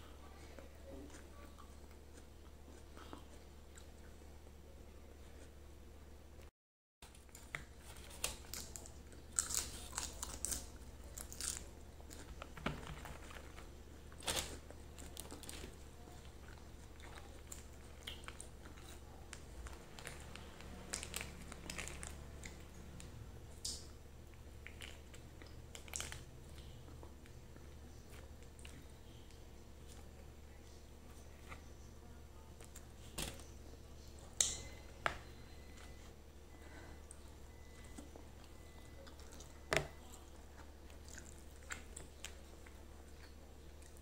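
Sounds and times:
steady low hum: 0:00.0 - 0:44.0
food being torn and chewed: 0:07.0 - 0:30.3, 0:37.1 - 0:44.0.

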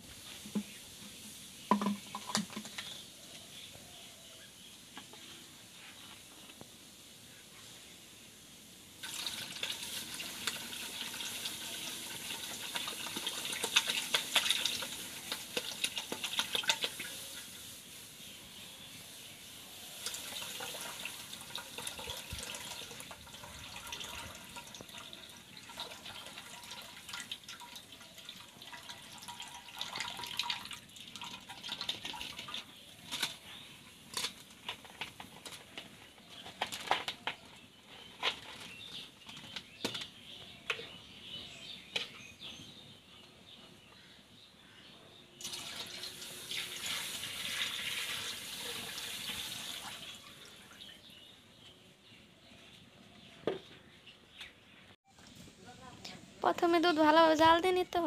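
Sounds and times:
milk pouring and splashing: 0:09.0 - 0:17.7, 0:19.9 - 0:33.4, 0:45.4 - 0:51.0.

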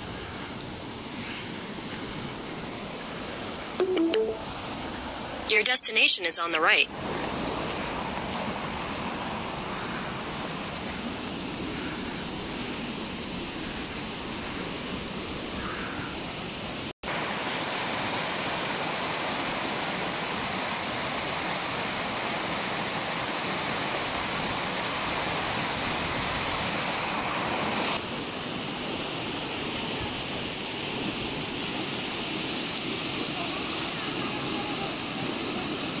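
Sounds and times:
water rushing over waterfall: 0:16.6 - 0:36.0.

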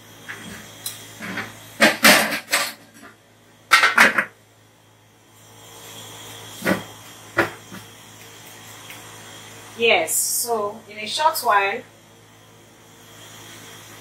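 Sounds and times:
metal lid clanking and scraping: 0:01.2 - 0:03.1.

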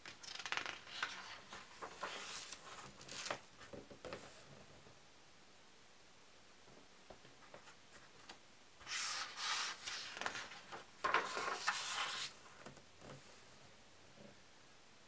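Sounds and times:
book page turning: 0:00.2 - 0:03.5, 0:08.8 - 0:12.4.

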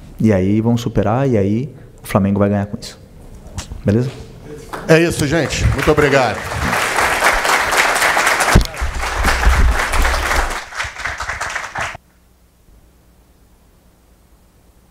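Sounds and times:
applause: 0:04.7 - 0:12.0.

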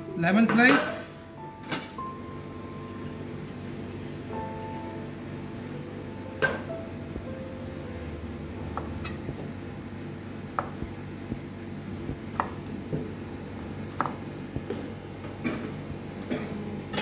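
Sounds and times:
low hum: 0:01.2 - 0:13.8.

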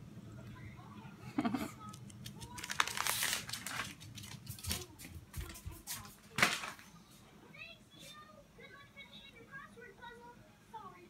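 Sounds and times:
crinkly rustling: 0:01.9 - 0:06.9.

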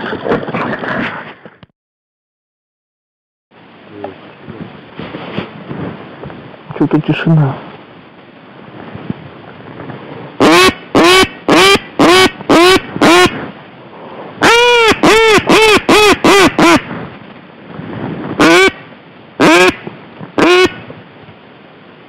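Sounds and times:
wind noise: 0:00.0 - 0:01.6, 0:03.6 - 0:22.0
duck quacking: 0:10.4 - 0:13.4, 0:14.4 - 0:16.9, 0:18.4 - 0:18.8, 0:19.4 - 0:19.8, 0:20.4 - 0:20.8.

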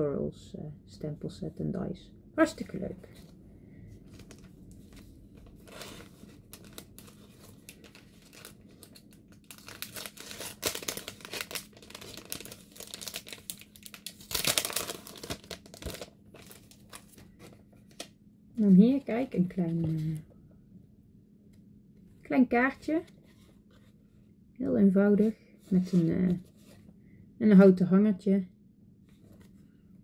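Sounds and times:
plastic sleeve crinkling: 0:04.0 - 0:18.1.

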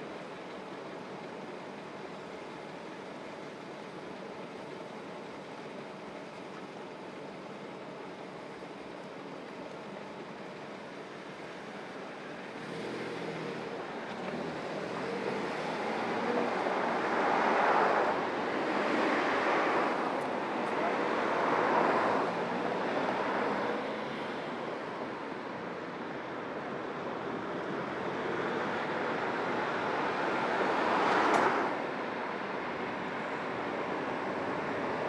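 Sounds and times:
car engines idling: 0:00.0 - 0:35.0
oncoming traffic passing: 0:10.4 - 0:35.0.

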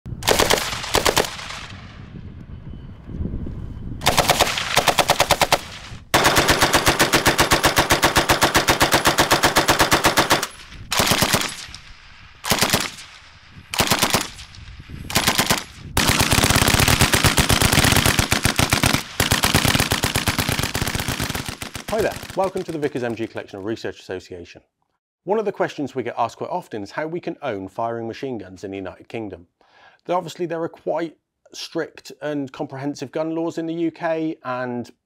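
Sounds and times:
machine gun bursts: 0:00.2 - 0:01.6, 0:04.0 - 0:11.6, 0:12.4 - 0:13.0, 0:13.8 - 0:14.4, 0:15.1 - 0:23.4.

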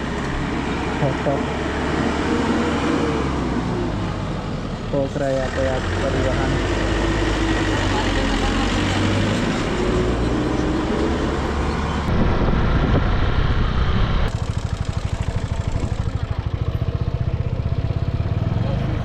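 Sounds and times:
wind rush: 0:12.0 - 0:14.3
motorcycle engine running: 0:12.1 - 0:19.0.

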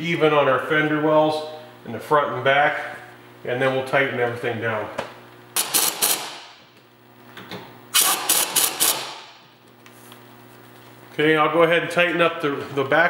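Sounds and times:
pneumatic impact wrench hammering: 0:05.6 - 0:06.7, 0:07.9 - 0:09.5.

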